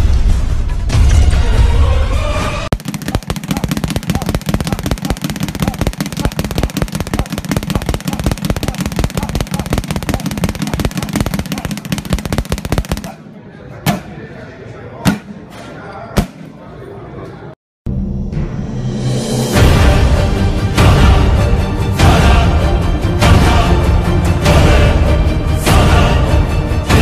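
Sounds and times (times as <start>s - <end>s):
speed bag rattling: 2.7s - 13.2s.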